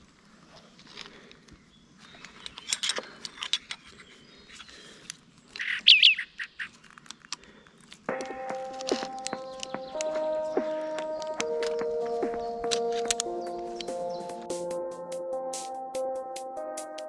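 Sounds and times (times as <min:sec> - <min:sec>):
metallic clicks of climbing gear: 0:00.5 - 0:05.8, 0:06.6 - 0:10.1, 0:12.6 - 0:13.9
birds singing: 0:00.6 - 0:14.9
loud curved bird call: 0:05.6 - 0:06.8
background music: 0:08.1 - 0:17.0.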